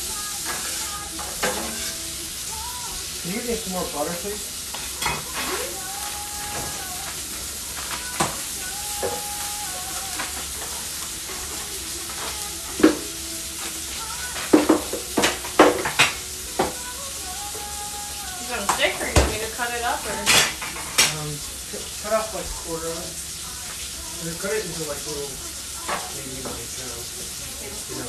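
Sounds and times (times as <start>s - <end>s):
vegetables sizzling on a griddle: 0.0s - 28.0s
kitchen utensils clinking: 0.4s - 2.1s, 3.2s - 17.0s, 18.4s - 22.6s.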